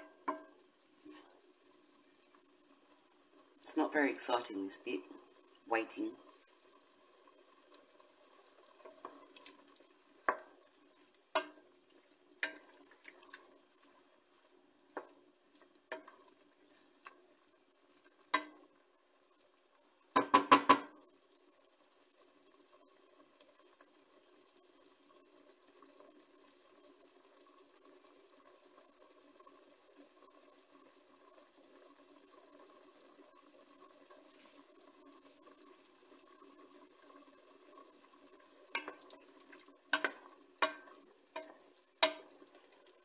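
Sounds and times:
wooden spoon knocking against pot: 0:00.0 - 0:00.5, 0:11.4 - 0:11.6, 0:18.3 - 0:18.6, 0:20.2 - 0:20.9, 0:39.9 - 0:42.3
meat juices simmering: 0:00.0 - 0:43.0.

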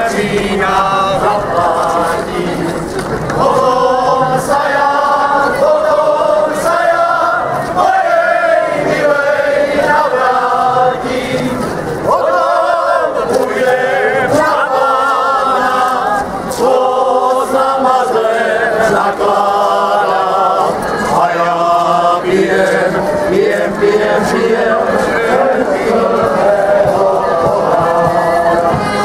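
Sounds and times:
group of voices singing: 0:00.0 - 0:29.0.

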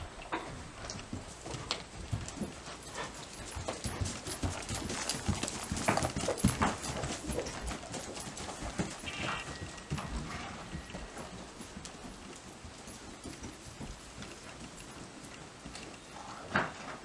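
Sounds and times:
horse hoofbeats on dirt: 0:00.0 - 0:17.0.

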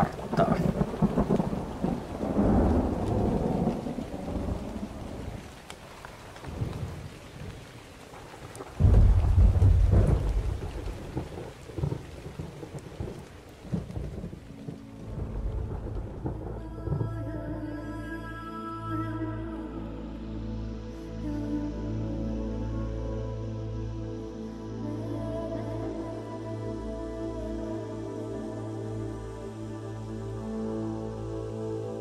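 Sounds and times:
thunder rolling: 0:00.0 - 0:05.6, 0:06.2 - 0:17.7
rain falling: 0:00.0 - 0:32.0.

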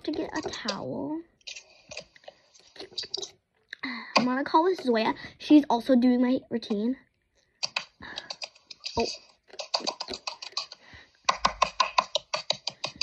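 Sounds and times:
fingers tapping on skin: 0:07.6 - 0:13.0.

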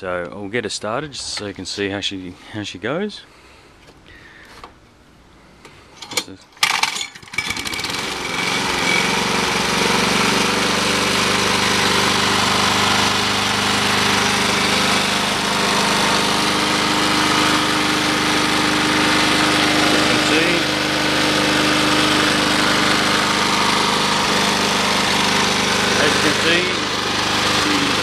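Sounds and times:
lawn mower engine starting: 0:05.9 - 0:28.0.

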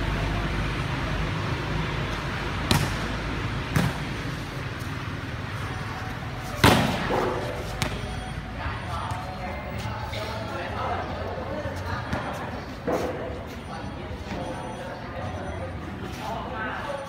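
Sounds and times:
volleyball being hit: 0:02.6 - 0:04.1, 0:06.6 - 0:08.1.

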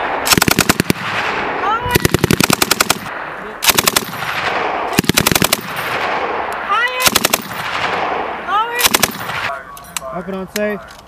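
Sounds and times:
gunshot echo: 0:00.0 - 0:09.6
machine gun bursts: 0:05.0 - 0:05.9, 0:06.9 - 0:07.6, 0:08.8 - 0:09.4.

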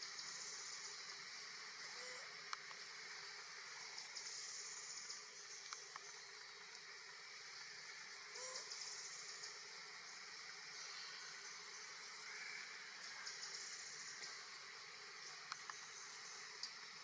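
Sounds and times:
light clicks: 0:05.6 - 0:06.4.

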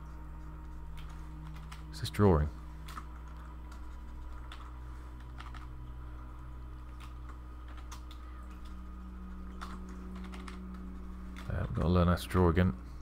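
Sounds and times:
low electrical hum: 0:00.0 - 0:13.0
keyboard keys clicking: 0:02.8 - 0:05.9, 0:09.4 - 0:11.9.

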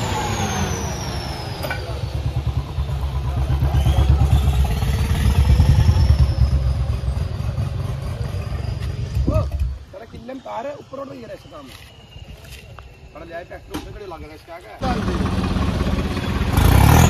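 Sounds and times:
tractor diesel engines labouring: 0:00.0 - 0:10.0, 0:14.8 - 0:17.0.

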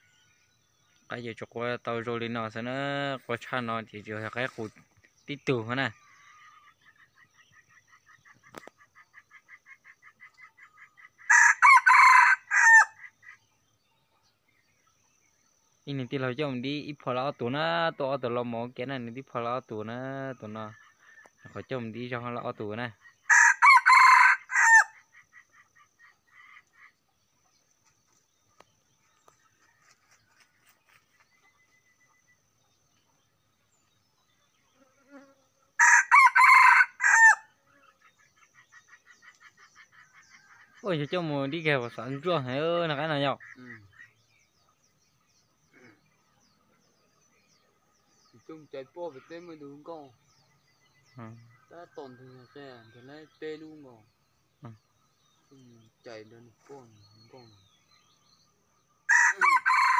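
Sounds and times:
rooster crowing: 0:11.3 - 0:13.0, 0:23.3 - 0:25.0, 0:35.8 - 0:37.5, 0:59.1 - 0:59.9
faint chirping: 0:24.9 - 0:35.8, 0:37.4 - 0:59.2.

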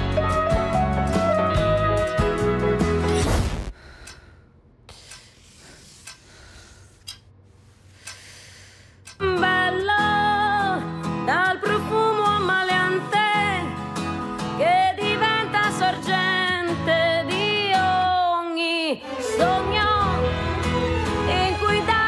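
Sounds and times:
guitar accompaniment: 0:00.0 - 0:03.2, 0:09.4 - 0:18.2, 0:19.1 - 0:22.0
soundtrack music: 0:00.0 - 0:03.6, 0:19.0 - 0:22.0
person singing: 0:09.2 - 0:13.7, 0:14.6 - 0:22.0.

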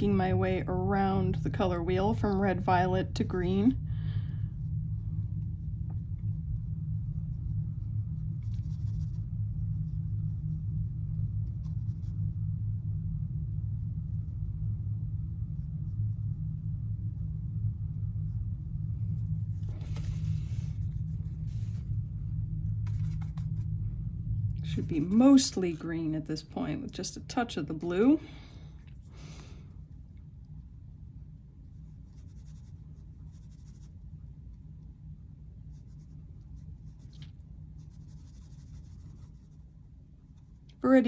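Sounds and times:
steady low hum: 0:00.0 - 0:41.0
brush scrubbing watercolour paint: 0:05.0 - 0:12.4, 0:19.2 - 0:22.2, 0:22.8 - 0:23.8, 0:24.6 - 0:25.9, 0:31.6 - 0:34.3, 0:35.6 - 0:40.8
brush stroking wet paint on paper: 0:05.0 - 0:12.4, 0:19.2 - 0:23.8, 0:24.6 - 0:25.8, 0:31.6 - 0:34.3, 0:35.6 - 0:40.8.

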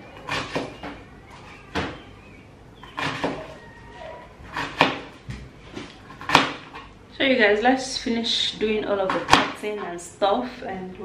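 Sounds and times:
knife chopping on plastic board: 0:02.9 - 0:03.5, 0:04.5 - 0:06.7, 0:09.1 - 0:09.6.

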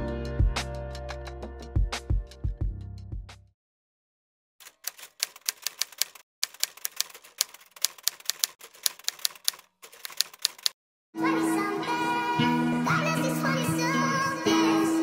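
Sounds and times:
typewriter keystroke clicks: 0:04.6 - 0:10.8.

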